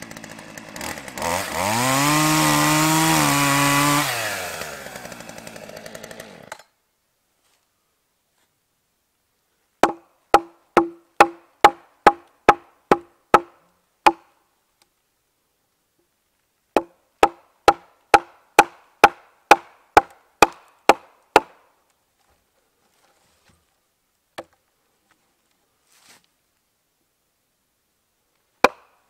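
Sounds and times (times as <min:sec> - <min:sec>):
mallet striking axe: 0:09.8 - 0:13.5.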